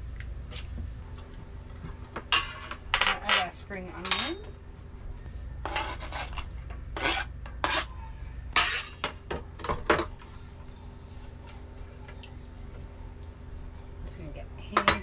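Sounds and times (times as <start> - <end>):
utensil scraping a bowl: 5.6 - 8.0.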